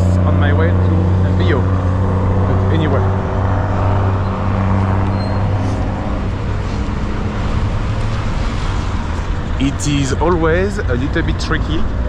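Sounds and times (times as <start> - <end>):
bus engine humming: 0.0 - 12.0
street traffic: 0.0 - 12.0.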